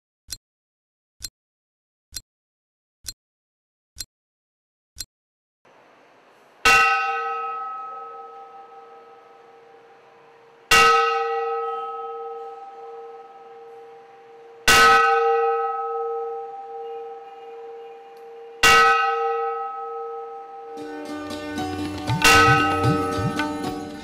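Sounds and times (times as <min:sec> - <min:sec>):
large temple bell ringing: 0:06.6 - 0:24.0.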